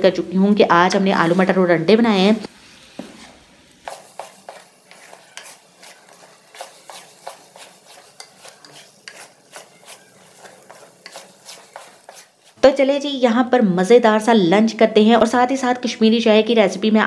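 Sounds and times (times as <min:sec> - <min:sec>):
light sizzle: 0:00.0 - 0:13.1
spatula scraping metal pot: 0:02.8 - 0:12.7.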